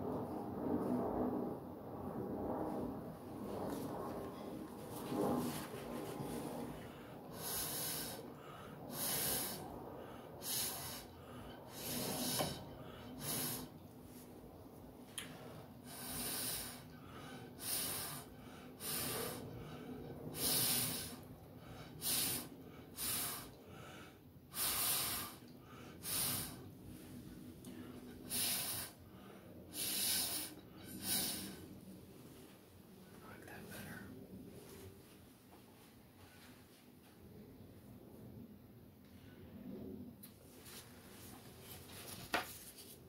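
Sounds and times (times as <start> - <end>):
person blowing short puffs: 29.8 - 31.6.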